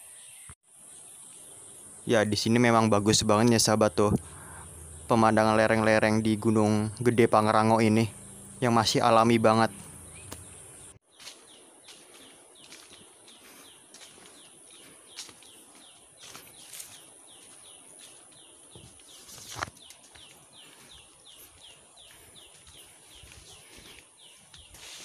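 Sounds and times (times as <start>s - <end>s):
insect hiss: 0.0s - 20.6s, 21.2s - 25.0s
footsteps on dirt path: 9.6s - 25.0s
brushing through plants: 16.1s - 21.6s, 22.5s - 25.0s.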